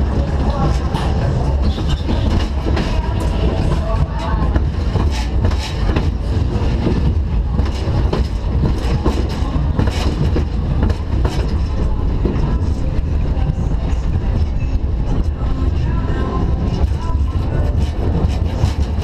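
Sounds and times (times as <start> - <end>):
fairground ride rumbling: 0.0 - 19.0.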